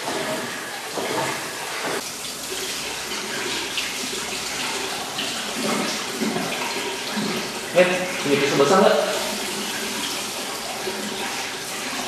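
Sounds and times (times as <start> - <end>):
hands washing under water: 0.0 - 12.0
water running from sink tap: 0.0 - 12.0.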